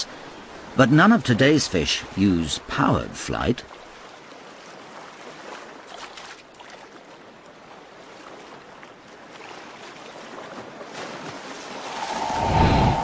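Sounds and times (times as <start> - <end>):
water lapping and sloshing: 3.6 - 13.0
small water splashes: 3.7 - 12.0.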